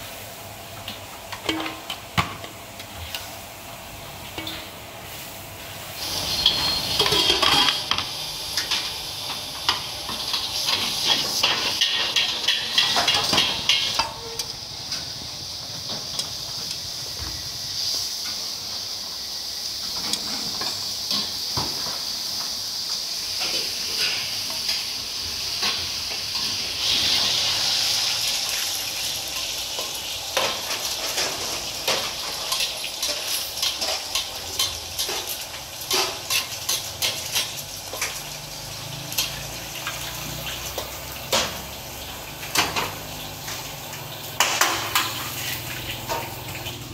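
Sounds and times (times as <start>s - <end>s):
noodles sizzling in a wok: 0.0s - 46.9s
metal spatula scraping a wok: 6.0s - 7.9s, 30.4s - 38.3s, 44.4s - 46.4s
dishes clinking: 6.3s - 8.0s.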